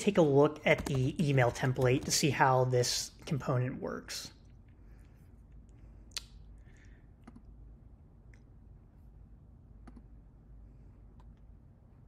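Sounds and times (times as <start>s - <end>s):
computer mouse clicks: 7.2s - 7.5s, 9.8s - 10.1s.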